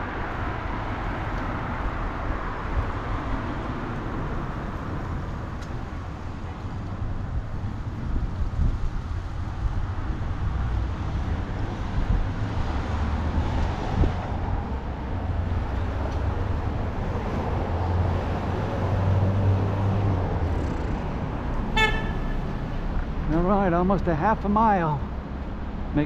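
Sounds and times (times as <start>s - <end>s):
street traffic rumble: 0.0s - 26.0s
car horn toot: 21.7s - 22.4s.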